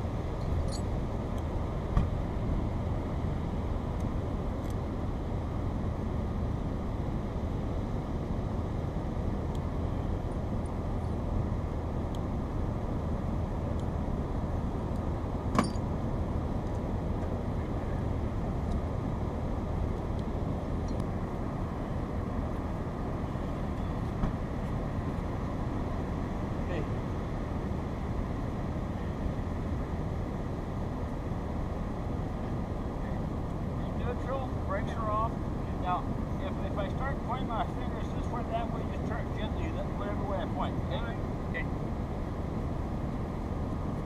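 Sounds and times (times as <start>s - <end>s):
steady low rumble: 0.0s - 44.0s
sharp metallic clinks: 0.4s - 0.9s, 15.6s - 15.9s.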